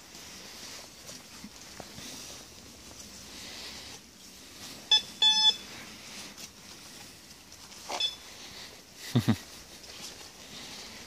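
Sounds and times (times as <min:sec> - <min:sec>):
metal detector beeps: 0:04.8 - 0:05.8, 0:07.9 - 0:08.4.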